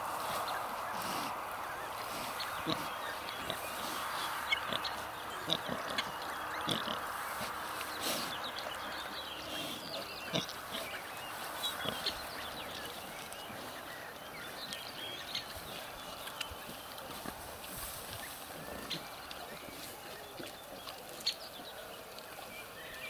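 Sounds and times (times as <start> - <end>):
pigs grunting and squeaking: 2.0 - 8.3, 9.4 - 13.8, 17.1 - 20.6.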